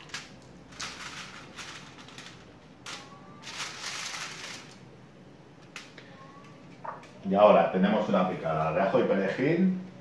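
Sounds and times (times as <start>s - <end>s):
aluminium foil crinkling: 0.0s - 4.9s.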